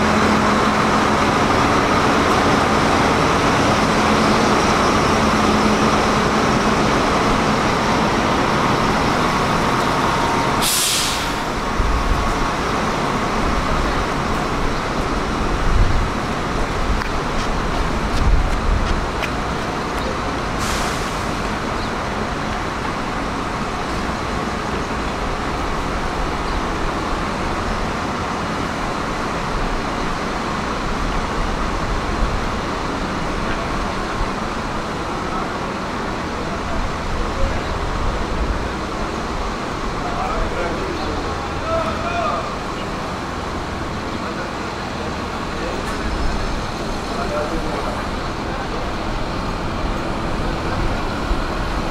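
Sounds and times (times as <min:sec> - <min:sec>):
rumble of idling and passing buses: 0:00.0 - 0:51.9
bus air brakes hissing: 0:09.9 - 0:11.7, 0:20.5 - 0:21.7.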